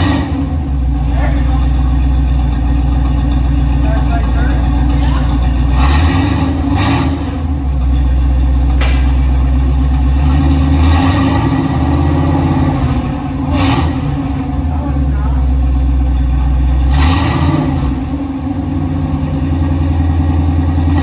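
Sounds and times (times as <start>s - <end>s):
car engine idling: 0.0s - 21.0s
sharp click: 8.8s - 9.2s.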